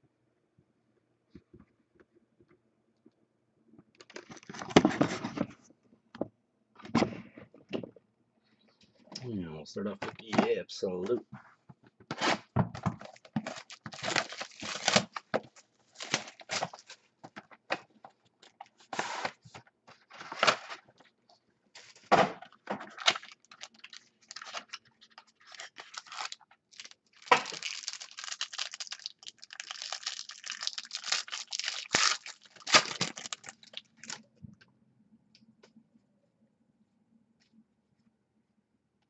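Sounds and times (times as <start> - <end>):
plastic and foil wrapping crinkling: 4.0 - 4.8, 12.8 - 17.6, 21.8 - 34.3.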